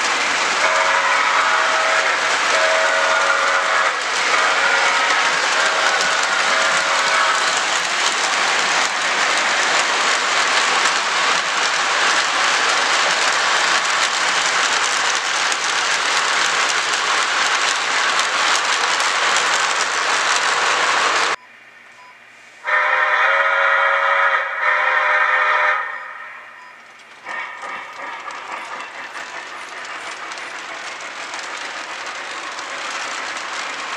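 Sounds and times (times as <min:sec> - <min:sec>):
model train rolling on track: 0:00.0 - 0:21.4, 0:22.6 - 0:33.9
model train whistle: 0:00.6 - 0:07.6, 0:22.6 - 0:26.6.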